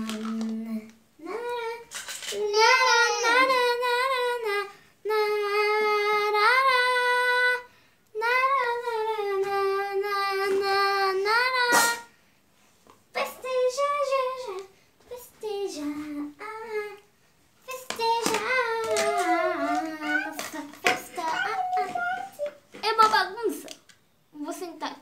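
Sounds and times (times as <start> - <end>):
child singing wordless tune: 0.0 - 12.1, 13.1 - 22.8
child squealing: 21.2 - 22.5.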